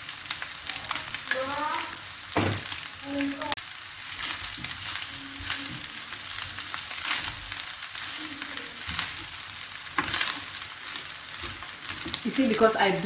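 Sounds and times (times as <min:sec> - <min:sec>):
rice sizzling in a hot wok: 0:00.0 - 0:13.0
wooden spatula scraping a pan: 0:04.0 - 0:13.0.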